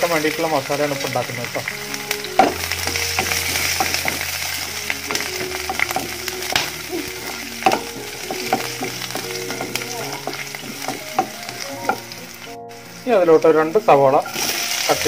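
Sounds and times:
spices sizzling in hot oil: 0.0s - 15.0s.

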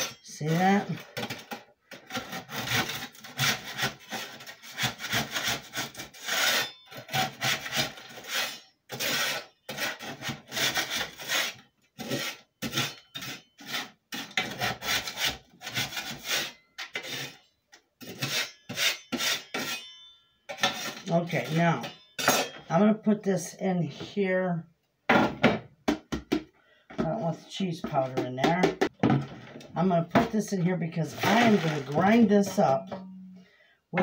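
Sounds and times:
metal scraper rasping on steel tray: 2.2s - 22.6s.

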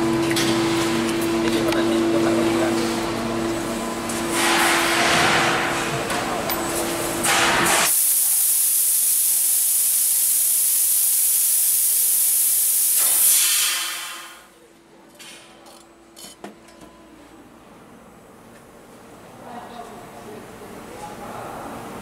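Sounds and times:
hiss of laser cutter gas jet: 7.7s - 14.5s.

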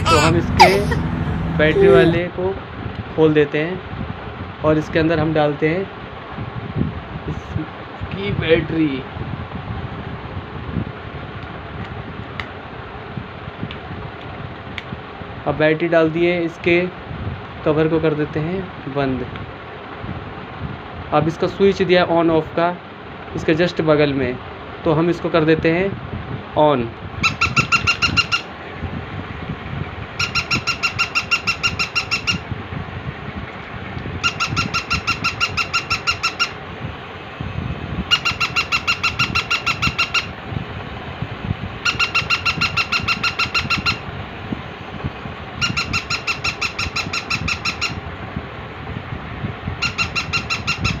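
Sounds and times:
high electronic yapping: 0.0s - 2.2s.

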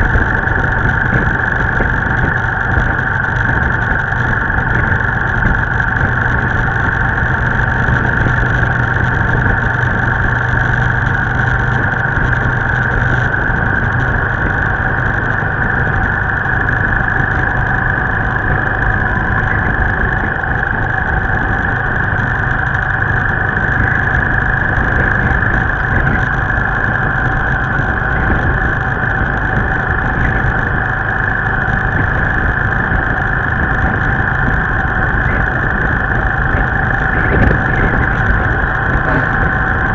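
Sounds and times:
motorbike engine drone: 0.0s - 39.9s
road noise: 0.0s - 39.9s
wind noise: 0.0s - 39.9s.

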